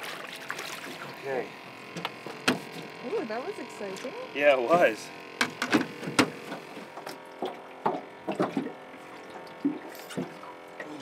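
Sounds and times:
water lapping against boat hull: 0:00.0 - 0:01.2, 0:05.4 - 0:11.0
short knocks and clicks: 0:05.4 - 0:08.7.

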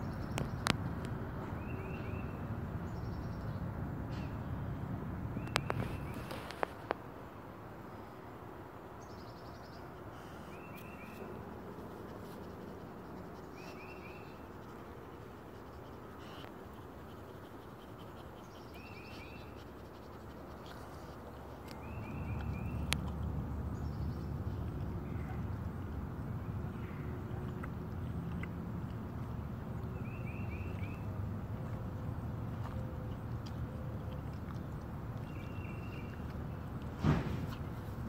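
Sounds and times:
outdoor background noise: 0:00.0 - 0:38.0
songbird singing short phrase: 0:35.2 - 0:36.2.

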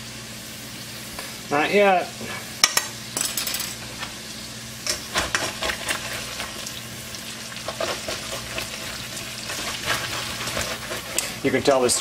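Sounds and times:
potatoes sizzling in a pan: 0:00.0 - 0:12.0
scrapes and knocks in pan: 0:07.7 - 0:11.4.

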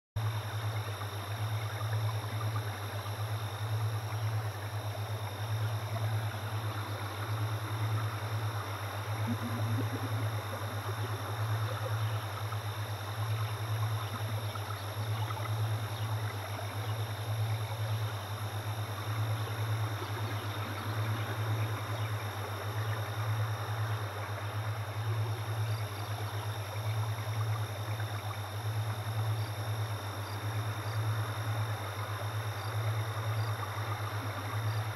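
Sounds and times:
low pulsing hum: 0:00.2 - 0:34.9.

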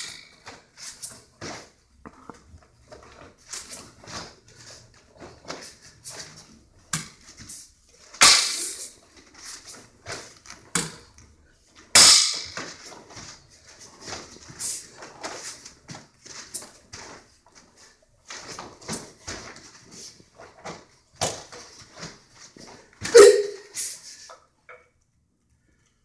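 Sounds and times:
uniform snapping and swishing: 0:00.0 - 0:11.2
bare feet landing on mats: 0:11.9 - 0:23.6.

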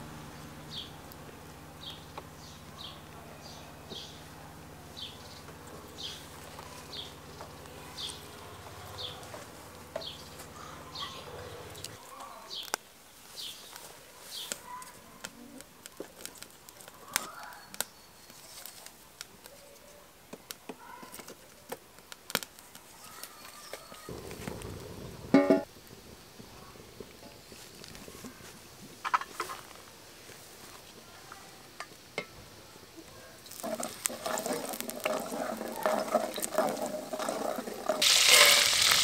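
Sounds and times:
bird chirping: 0:00.2 - 0:12.8
dry sticks cracking and snapping: 0:11.8 - 0:12.9, 0:14.4 - 0:19.6, 0:21.2 - 0:23.4, 0:33.4 - 0:37.3
fire rushing: 0:24.1 - 0:30.6, 0:33.4 - 0:39.0.

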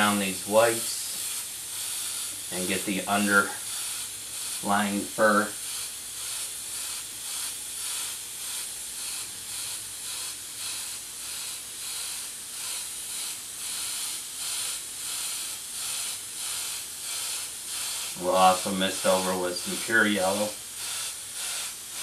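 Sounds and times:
airbrush spraying: 0:00.0 - 0:22.0.

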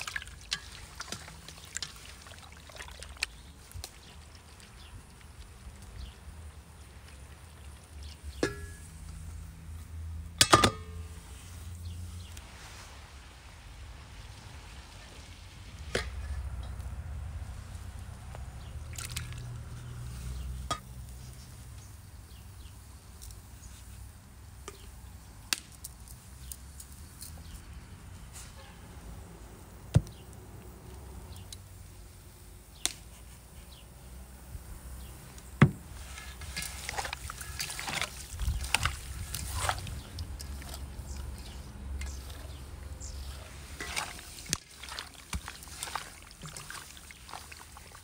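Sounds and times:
wet squelching of kneaded liver: 0:00.0 - 0:08.4, 0:12.2 - 0:20.6, 0:35.8 - 0:48.0.

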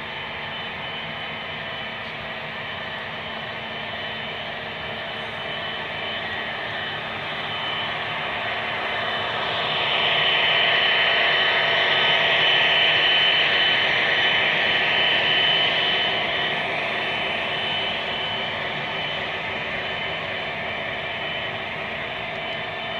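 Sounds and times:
thin high whine: 0:00.0 - 0:22.9
model train whirring: 0:01.5 - 0:22.9.

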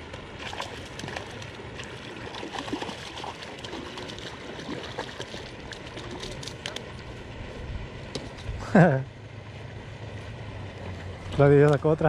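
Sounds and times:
fish splashing in water: 0:00.0 - 0:07.1.

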